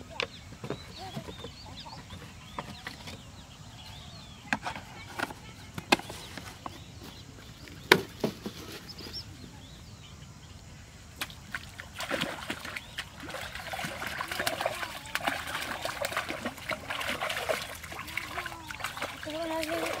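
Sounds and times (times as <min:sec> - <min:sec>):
fish splashing water: 0:11.2 - 0:20.0.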